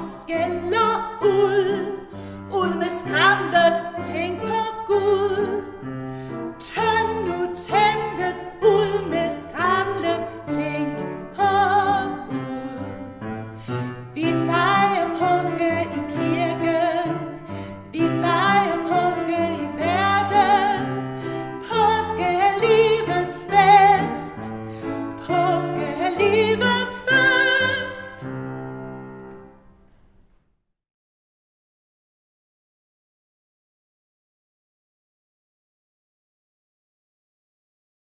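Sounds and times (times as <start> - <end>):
woman singing a hymn: 0.0 - 5.8, 6.5 - 28.4
piano accompaniment: 0.0 - 30.3.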